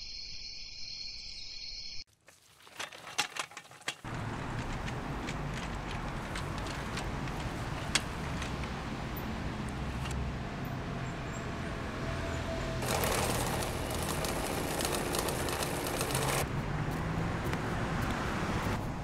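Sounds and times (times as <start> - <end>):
low street traffic rumble: 4.0 - 19.0
sewing machine stitching: 12.8 - 16.4.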